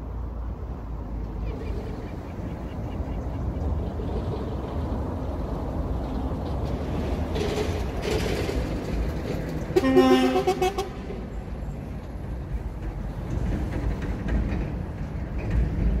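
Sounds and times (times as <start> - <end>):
horn toot: 9.8 - 11.1.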